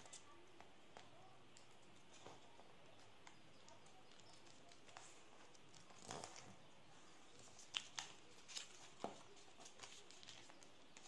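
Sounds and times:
paper crackling: 7.3s - 11.0s
paper rustling while folded: 7.3s - 11.0s.

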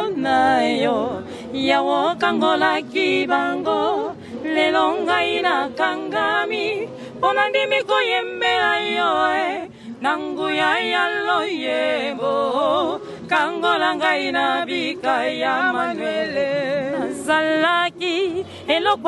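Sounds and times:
voices singing in harmony: 0.0s - 19.0s.

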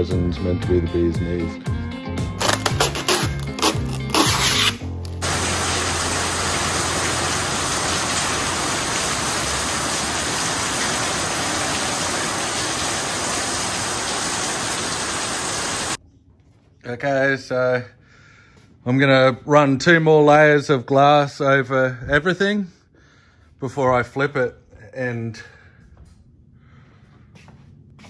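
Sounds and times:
music: 0.0s - 6.7s.

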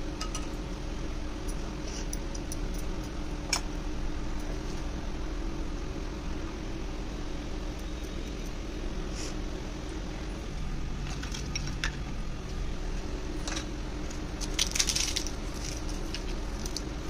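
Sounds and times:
low steady hum: 0.0s - 17.0s
crisp dough crunching: 14.2s - 17.0s.

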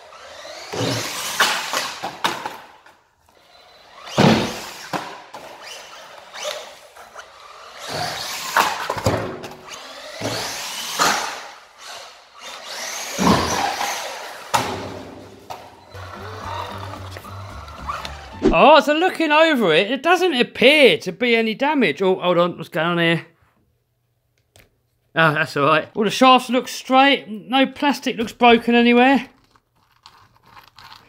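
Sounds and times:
toy truck motor whining: 0.0s - 14.6s, 15.5s - 18.4s, 29.4s - 31.0s
tyres on concrete floor: 0.0s - 18.6s, 28.2s - 31.0s.

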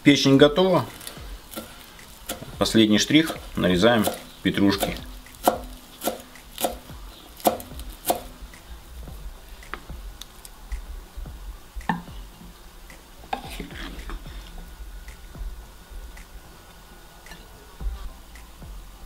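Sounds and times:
knife chopping on wooden board: 0.9s - 8.4s
spatula scraping frying pan: 0.9s - 8.4s, 13.3s - 14.7s.

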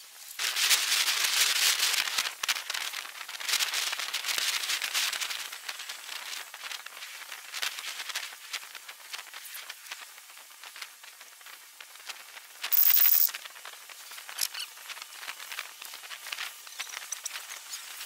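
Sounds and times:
dense crackling hiss: 0.0s - 18.0s.

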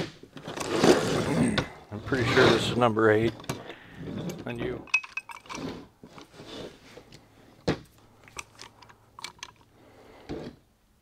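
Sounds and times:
metal clicks and knocks: 4.8s - 5.6s, 7.7s - 9.7s.

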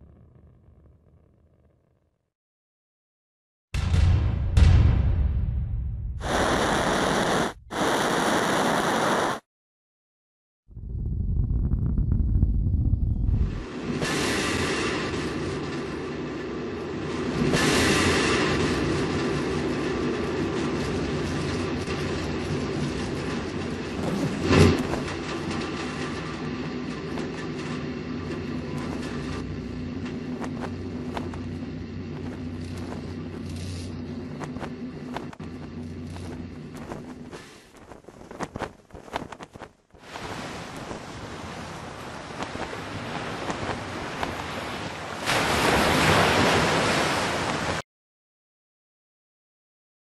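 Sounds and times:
loud steady hiss: 6.2s - 9.4s
low engine drone: 10.7s - 37.6s.

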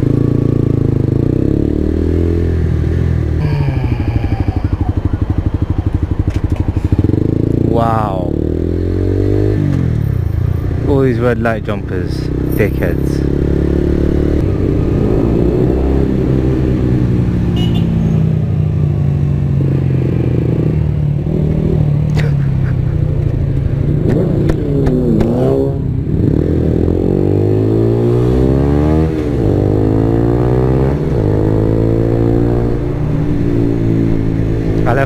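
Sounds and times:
motorcycle engine accelerating: 0.0s - 35.0s.

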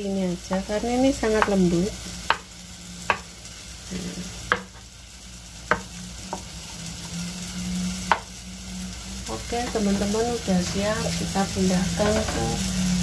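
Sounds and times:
tomatoes sizzling in a pan: 0.0s - 13.0s
knife tapping on cutting board: 1.3s - 1.6s, 2.3s - 2.5s, 4.5s - 4.8s, 5.7s - 6.4s.

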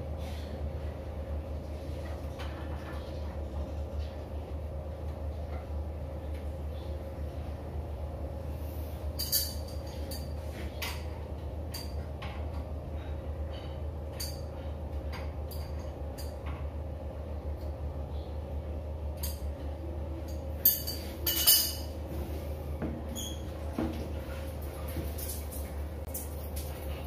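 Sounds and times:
steady low hum: 0.0s - 27.0s
tool and pipe fittings clinking: 9.2s - 11.0s, 20.3s - 21.9s.

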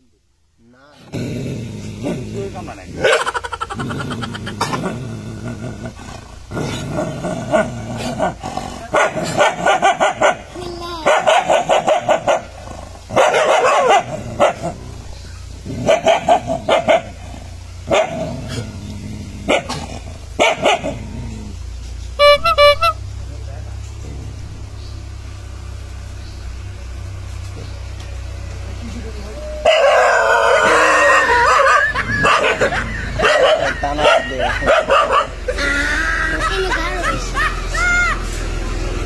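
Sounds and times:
dogs barking and growling: 1.0s - 22.2s, 23.8s - 39.0s.

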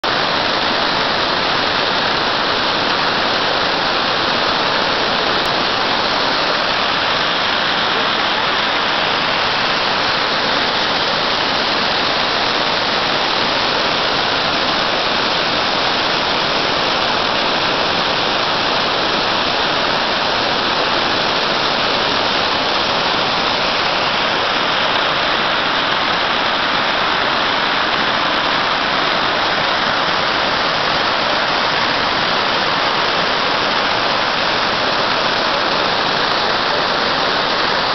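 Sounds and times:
waterfall crashing on rocks: 0.0s - 37.9s.

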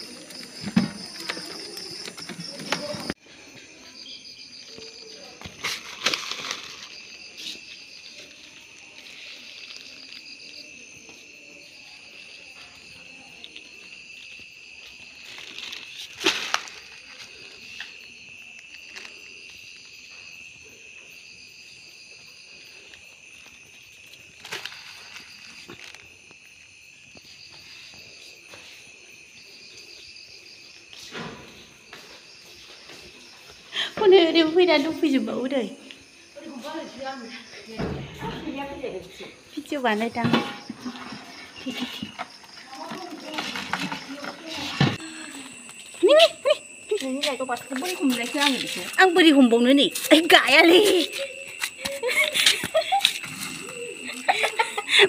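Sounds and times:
cricket steady trill: 0.0s - 55.0s
higher-pitched cricket chirping: 0.0s - 55.0s.

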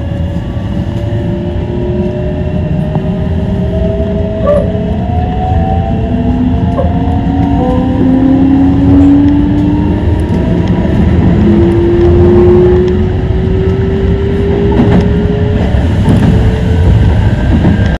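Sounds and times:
train rumble: 0.0s - 18.0s.

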